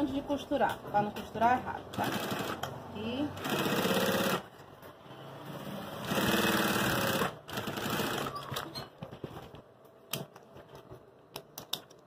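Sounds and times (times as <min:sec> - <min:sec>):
sewing machine stitching: 0:01.9 - 0:02.7, 0:03.4 - 0:04.5, 0:05.6 - 0:08.7.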